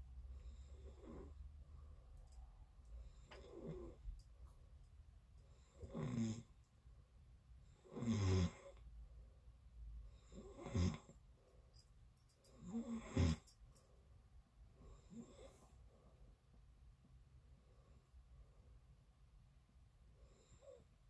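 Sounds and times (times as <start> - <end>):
person snoring: 5.8 - 6.4, 7.9 - 8.8.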